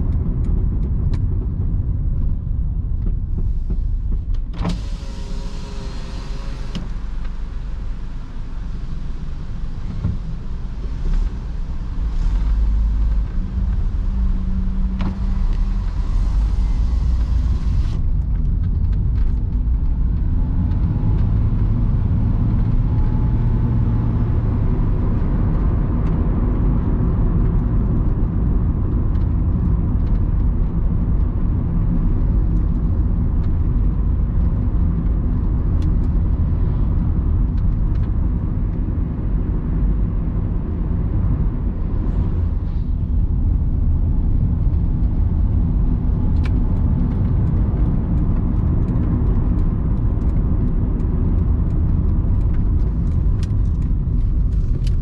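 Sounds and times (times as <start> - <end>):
car engine running: 0.0 - 55.0
tyre and road noise: 0.0 - 55.0.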